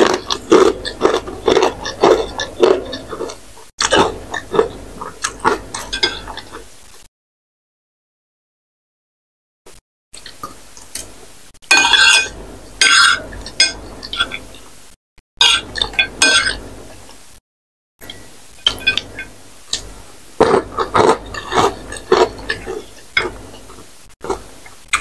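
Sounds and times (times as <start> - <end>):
chewing noodles: 0.0 - 6.7, 20.4 - 25.0
cutlery clinking on ceramic plate: 5.8 - 6.4, 11.7 - 14.5, 15.4 - 16.6, 18.6 - 19.1.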